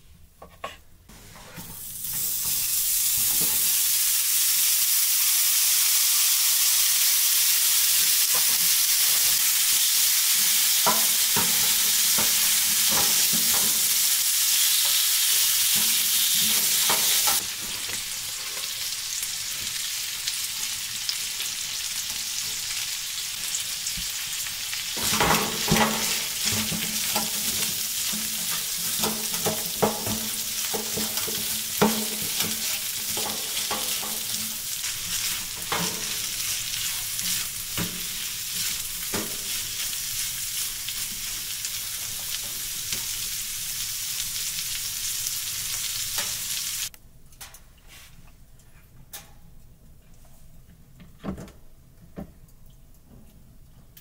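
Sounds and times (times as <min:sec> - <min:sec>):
meat sizzling in a frying pan: 0:01.8 - 0:46.9
spatula scraping and knocking pan: 0:10.4 - 0:14.0, 0:15.7 - 0:18.0, 0:25.0 - 0:40.4.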